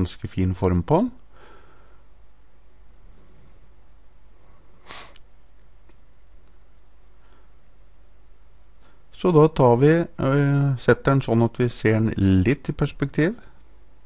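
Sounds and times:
low electrical hum: 0:00.0 - 0:14.0
sharp sniff through nose: 0:04.8 - 0:05.2.

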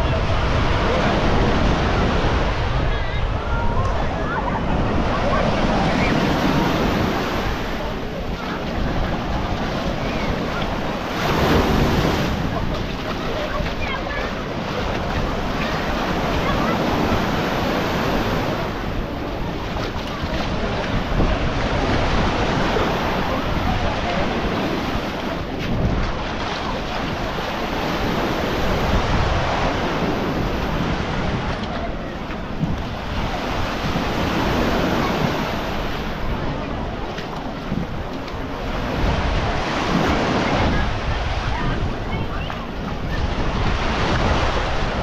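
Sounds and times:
waves breaking on beach: 0:00.0 - 0:45.0
wind buffeting microphone: 0:00.0 - 0:45.0.

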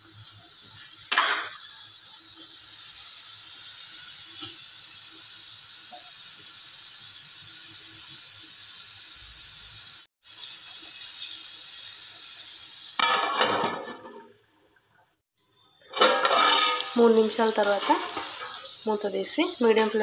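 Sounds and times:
vegetables sizzling in hot oil: 0:00.0 - 0:20.0
steel lid clattering onto pan: 0:01.1 - 0:01.6, 0:13.0 - 0:14.3, 0:15.9 - 0:17.2.

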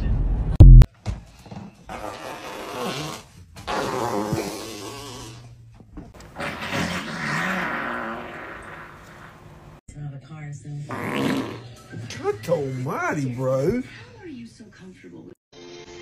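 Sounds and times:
fart sounds: 0:01.9 - 0:05.5, 0:06.2 - 0:09.6, 0:10.9 - 0:11.8.

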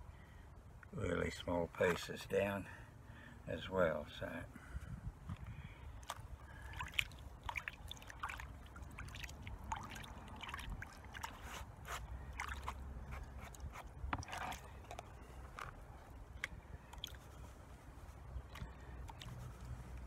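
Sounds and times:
small irregular splashes: 0:05.9 - 0:20.0.

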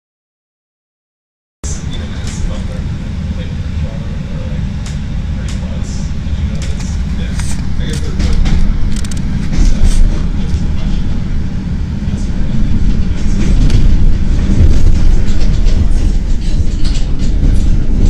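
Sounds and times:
train wheels rumbling on rail: 0:01.6 - 0:18.0
wheels clacking over rail joints: 0:06.5 - 0:11.1.

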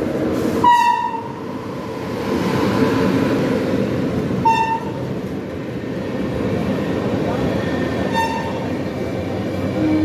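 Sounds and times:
train rumbling: 0:00.0 - 0:10.0
train horn toot: 0:00.6 - 0:01.3, 0:08.1 - 0:08.6.

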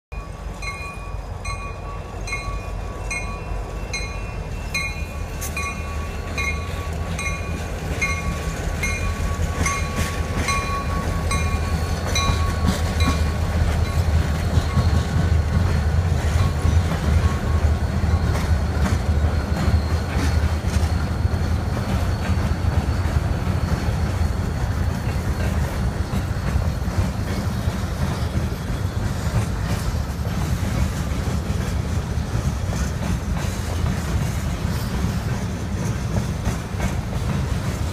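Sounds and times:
bell ringing: 0:00.1 - 0:14.1
diesel locomotive engines rumbling: 0:00.1 - 0:37.9
freight cars clattering on rails: 0:00.1 - 0:37.9.

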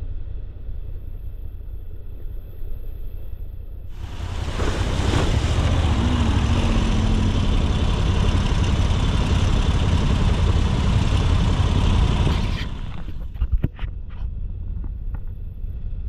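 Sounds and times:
steady rushing noise: 0:03.9 - 0:13.5
motorcycle engine running: 0:04.0 - 0:16.0.

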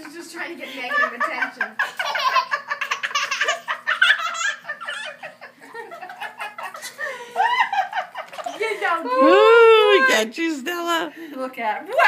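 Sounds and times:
toddler laughing: 0:01.9 - 0:07.0.

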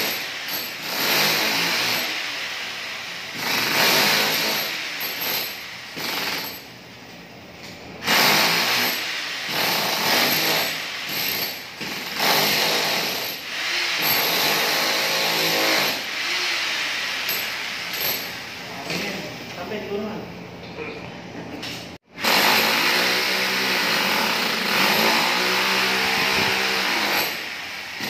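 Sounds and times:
demolition hammer chiselling tiles: 0:00.0 - 0:02.3, 0:03.3 - 0:06.7, 0:08.0 - 0:16.5, 0:17.2 - 0:18.4, 0:22.2 - 0:28.0.

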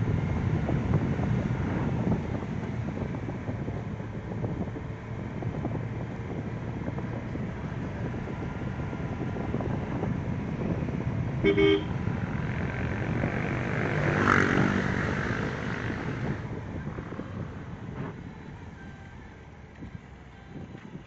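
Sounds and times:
car engine and road rumble: 0:00.0 - 0:21.0
car horn toot: 0:11.4 - 0:12.0.

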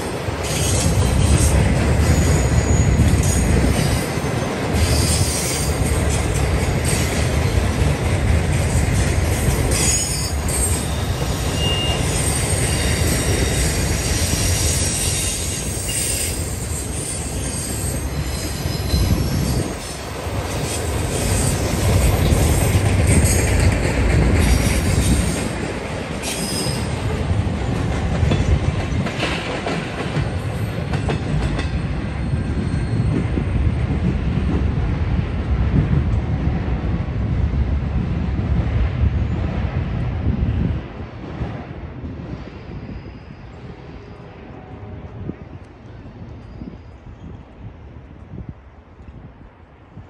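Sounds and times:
train wheels rumbling on track: 0:00.0 - 0:50.0
high wheel squeals: 0:00.4 - 0:04.1, 0:09.7 - 0:20.0, 0:26.2 - 0:27.0, 0:32.2 - 0:33.5.

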